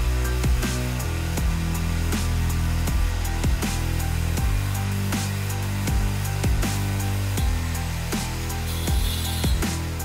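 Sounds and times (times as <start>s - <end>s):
deep bass notes: 0.0s - 10.0s
electronic drum beat: 0.0s - 10.0s.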